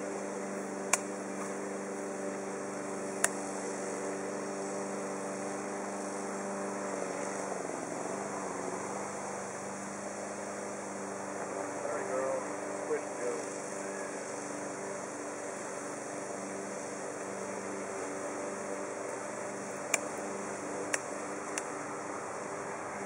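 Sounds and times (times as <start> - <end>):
honeybee swarm buzzing: 0.0 - 23.0
sharp clicks: 19.9 - 20.1, 20.9 - 21.7.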